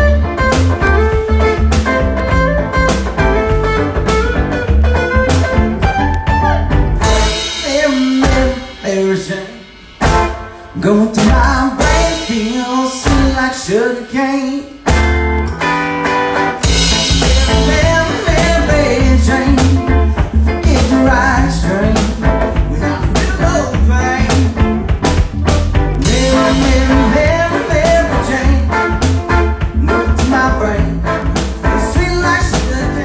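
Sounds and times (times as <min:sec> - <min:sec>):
drum beat: 0:00.0 - 0:10.5, 0:11.1 - 0:13.6, 0:16.6 - 0:32.9
electric guitar strumming: 0:00.0 - 0:33.0
heavy bass: 0:00.0 - 0:33.0
man singing: 0:07.1 - 0:09.9, 0:10.5 - 0:14.9, 0:16.8 - 0:24.9, 0:26.0 - 0:33.0.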